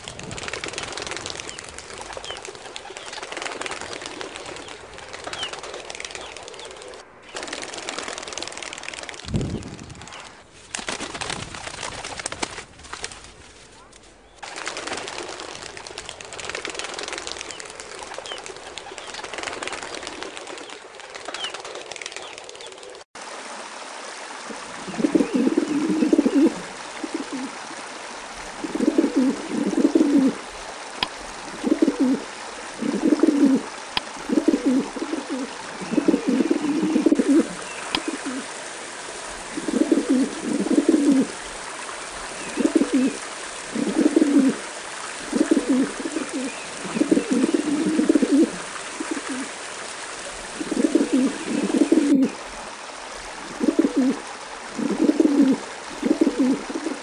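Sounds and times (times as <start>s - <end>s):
steady hiss: 23.2s - 57.0s
pigeons cooing: 24.5s - 57.0s.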